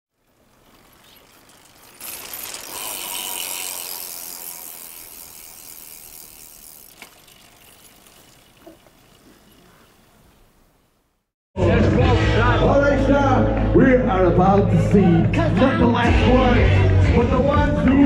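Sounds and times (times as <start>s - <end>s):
bicycle freewheel ratchet buzzing: 0.1s - 10.3s.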